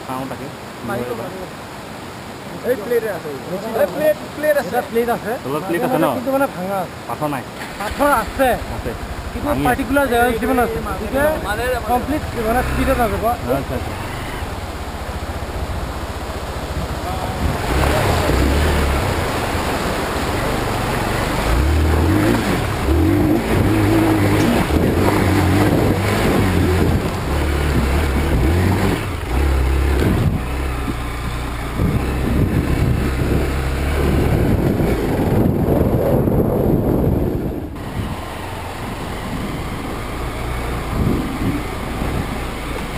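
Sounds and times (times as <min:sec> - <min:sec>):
motorcycle engine revving: 0:07.6 - 0:42.9
wind rushing over microphone: 0:16.5 - 0:42.9.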